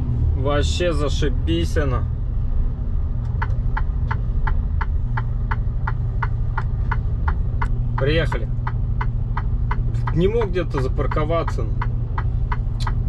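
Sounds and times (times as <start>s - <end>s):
diesel truck engine idling: 0.0s - 13.0s
indicator relay ticking: 3.3s - 13.0s.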